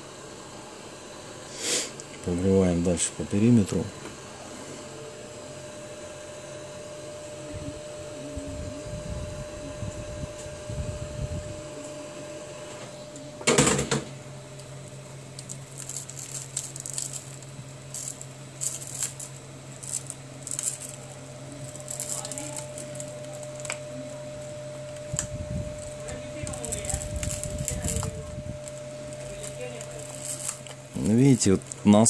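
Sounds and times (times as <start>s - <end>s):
hot air gun blowing: 1.4s - 2.0s.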